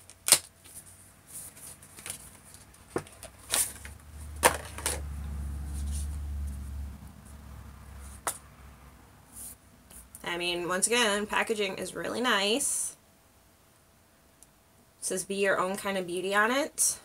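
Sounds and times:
cardboard rustling: 0.0s - 5.1s.

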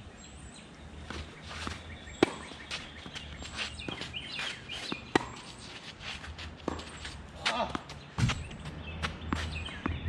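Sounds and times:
birds chirping: 0.0s - 10.0s
racket hitting tennis ball: 1.1s - 10.0s
shoes scuffing on clay: 1.1s - 10.0s.

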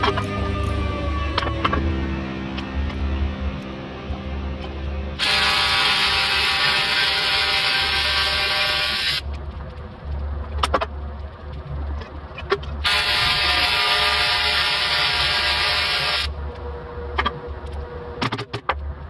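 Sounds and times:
welding arc buzzing: 5.2s - 9.3s, 12.8s - 16.3s.

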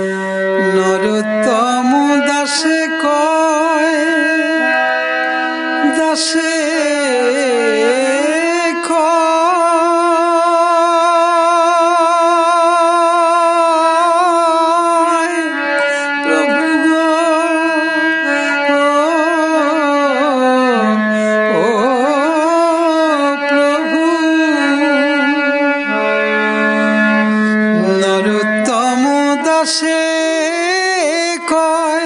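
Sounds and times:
devotional instrumental melody: 0.0s - 32.0s.

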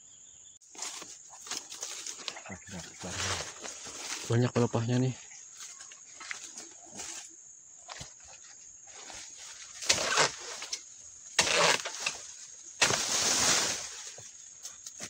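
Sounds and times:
blade scraping palm fronds: 8.9s - 10.8s, 11.4s - 14.2s.

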